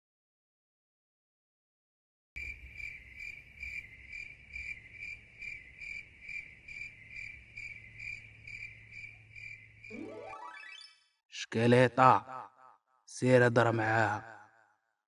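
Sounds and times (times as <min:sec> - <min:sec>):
cricket chirping: 0:02.4 - 0:10.6.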